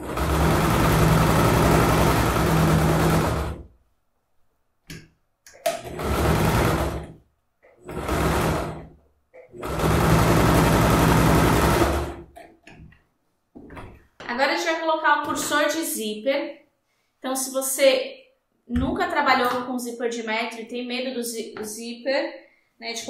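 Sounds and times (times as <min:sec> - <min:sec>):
sewing machine stitching: 0:00.0 - 0:03.8, 0:05.6 - 0:12.4.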